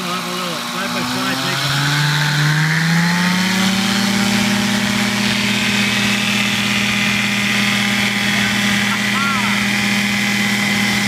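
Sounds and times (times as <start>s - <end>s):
light aircraft engine running: 3.4s - 11.0s.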